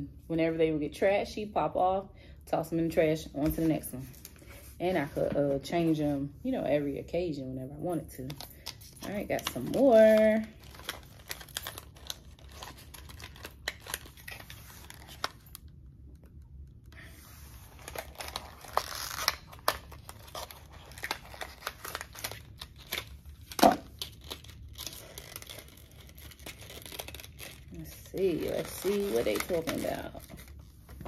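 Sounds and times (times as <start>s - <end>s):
packaging tearing and crinkling: 8.5s - 16.2s, 17.5s - 31.0s.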